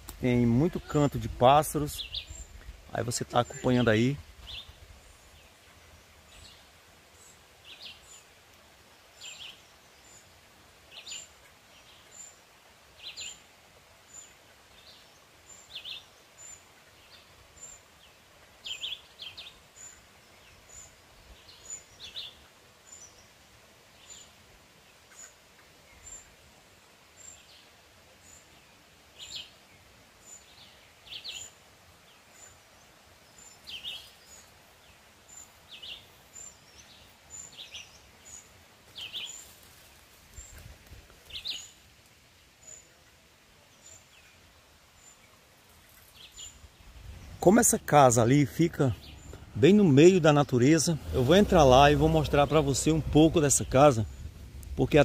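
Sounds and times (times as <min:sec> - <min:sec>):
birds singing: 0:00.2 - 0:08.3, 0:09.2 - 0:12.4, 0:13.0 - 0:26.4, 0:27.2 - 0:39.7, 0:40.3 - 0:41.8, 0:42.5 - 0:55.0.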